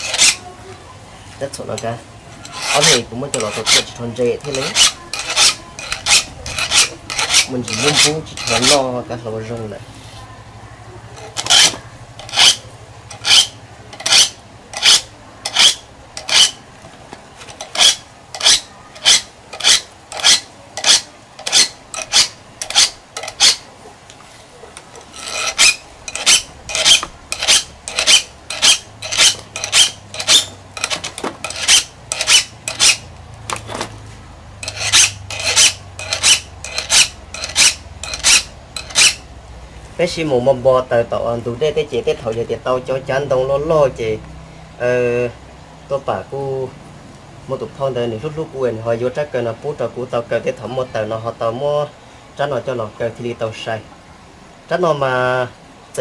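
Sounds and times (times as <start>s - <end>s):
blade sharpening strokes: 0.0s - 0.4s, 2.4s - 8.8s, 11.2s - 16.6s, 17.6s - 23.7s, 25.1s - 33.1s, 34.6s - 39.2s.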